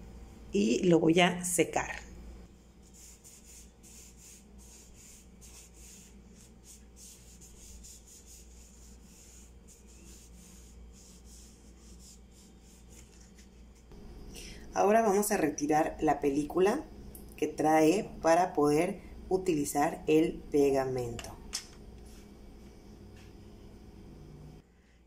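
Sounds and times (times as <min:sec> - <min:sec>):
paper towel rubbing strokes: 0:02.7 - 0:14.0.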